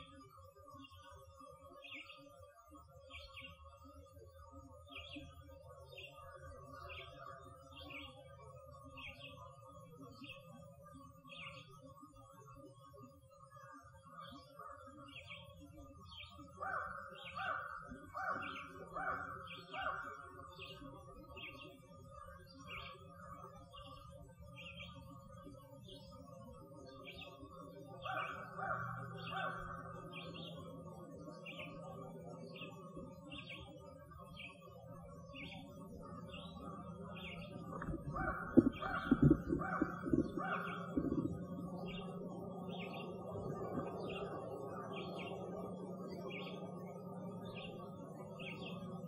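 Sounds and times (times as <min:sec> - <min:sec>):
bird chirping: 0:13.6 - 0:49.0
lower bird calls: 0:35.3 - 0:49.0
knocks and rubbing on recorder: 0:37.8 - 0:41.4.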